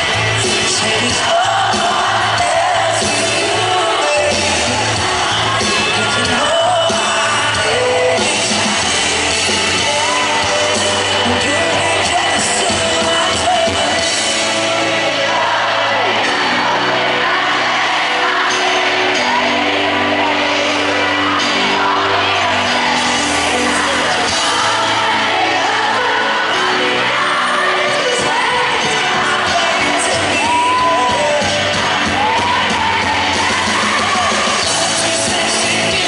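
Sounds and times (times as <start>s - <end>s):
man singing into microphone: 0.0s - 17.3s, 18.0s - 36.0s
crowd screaming and cheering: 0.0s - 36.0s
live pop band playing: 0.0s - 36.0s.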